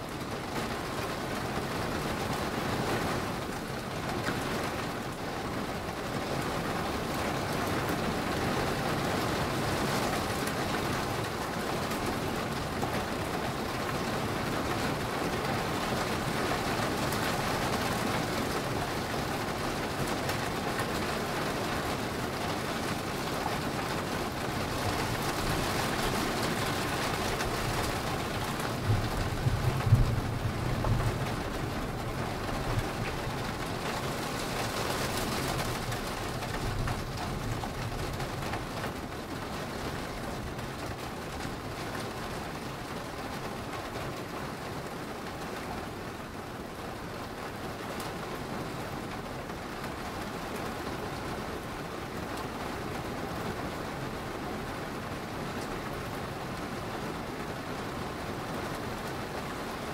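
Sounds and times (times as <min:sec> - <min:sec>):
steady rain: 0:00.0 - 0:59.9
thunder rumble: 0:24.5 - 0:38.2.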